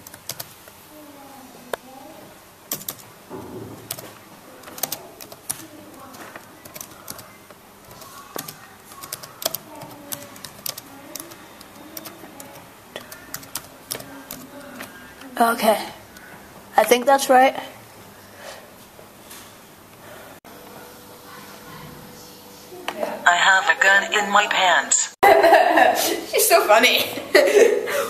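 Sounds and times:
keyboard typing: 0.0 - 0.5, 2.7 - 15.1.

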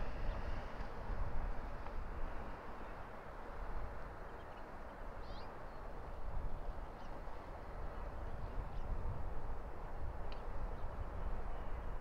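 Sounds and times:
outdoor background rumble and hiss: 0.0 - 12.0
faint high bird chirp: 5.2 - 5.8.

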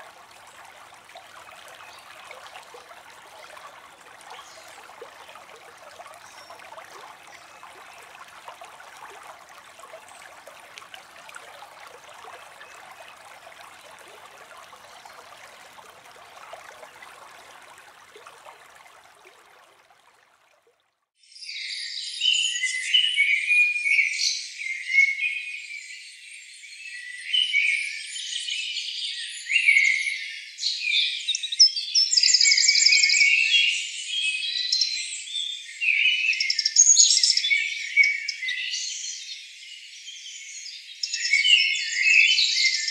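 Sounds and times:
water trickling and splashing: 0.0 - 21.1.

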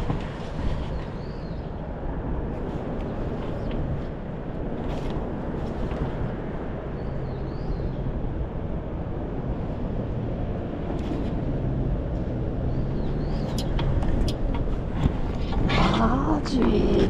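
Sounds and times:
low urban background rumble: 0.0 - 17.0.

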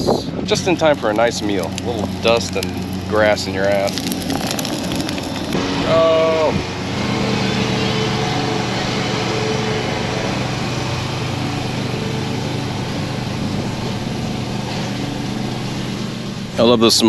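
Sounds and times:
lawn mower engine running: 0.5 - 17.0.

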